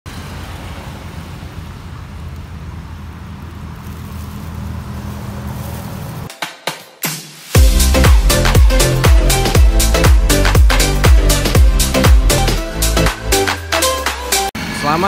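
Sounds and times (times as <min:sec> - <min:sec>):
road noise: 0:00.0 - 0:06.6, 0:07.6 - 0:15.0
engine rumble: 0:00.1 - 0:06.3.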